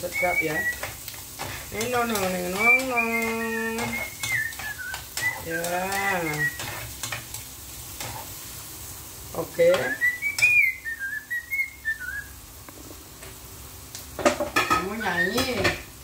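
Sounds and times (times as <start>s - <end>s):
garlic and onions sizzling in oil: 0.0s - 16.0s
person whistling a tune: 2.6s - 6.6s.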